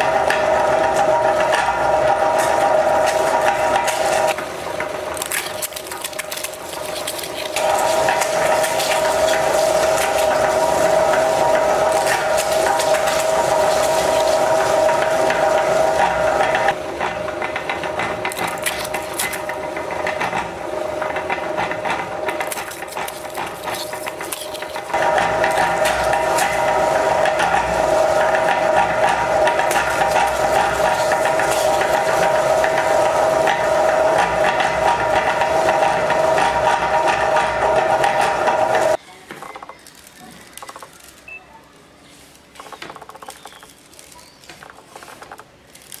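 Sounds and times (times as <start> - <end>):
crisp shells crackling in grinder: 0.6 - 16.8, 18.2 - 19.8, 22.2 - 37.0, 38.3 - 41.3, 42.2 - 46.0
crisp shells crackling: 5.1 - 14.9, 22.3 - 26.4, 39.3 - 41.3, 42.0 - 46.0.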